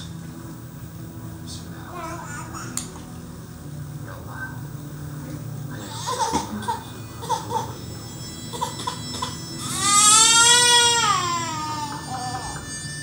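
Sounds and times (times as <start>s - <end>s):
infant crying: 8.5s - 12.7s.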